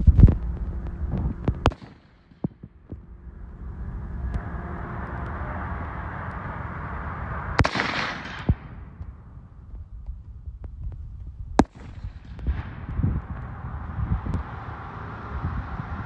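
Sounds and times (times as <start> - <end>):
rushing background noise: 0.0 - 16.0
rifle shot with echo: 1.6 - 2.5, 7.6 - 9.0, 11.6 - 13.0.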